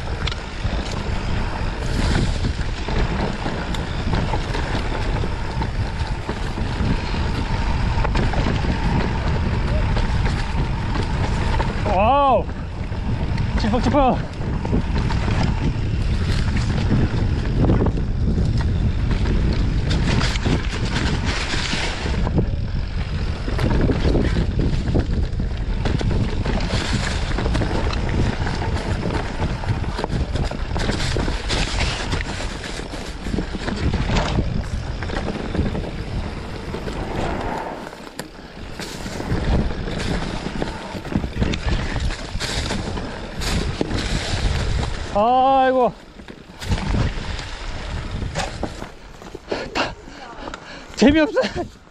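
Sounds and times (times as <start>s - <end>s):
bike clattering over bumps: 0.0s - 51.9s
tyres rumbling on dirt trail: 0.0s - 51.9s
wind rushing over microphone: 0.0s - 51.9s.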